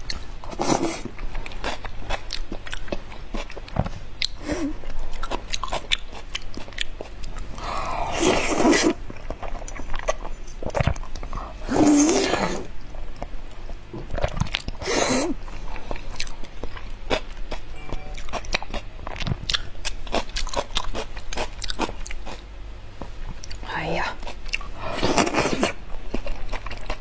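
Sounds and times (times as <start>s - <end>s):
wet chewing and mouth clicks: 1.1s - 7.6s, 8.4s - 11.4s, 15.6s - 22.4s, 24.2s - 27.0s.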